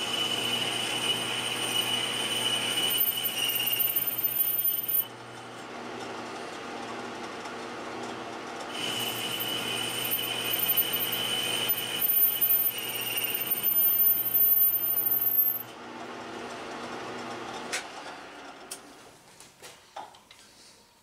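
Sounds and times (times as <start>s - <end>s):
metal lathe squealing: 0.0s - 5.2s, 8.7s - 15.8s.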